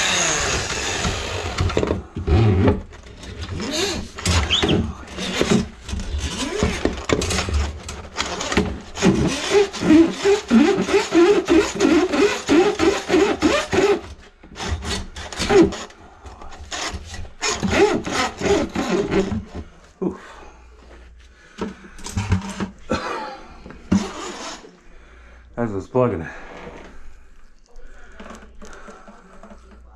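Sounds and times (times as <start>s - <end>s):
drain cleaning machine running: 0.0s - 1.9s
cable rasping and scraping in drain: 0.0s - 19.8s, 21.5s - 22.8s, 23.8s - 24.8s, 26.3s - 29.9s.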